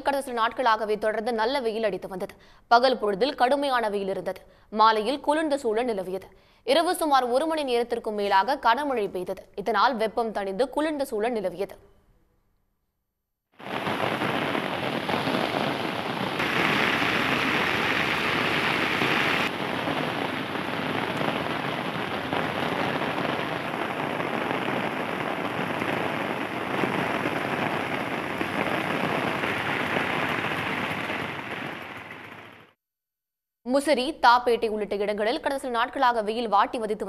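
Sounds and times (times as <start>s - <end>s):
heavy rain on pavement: 13.6s - 32.8s.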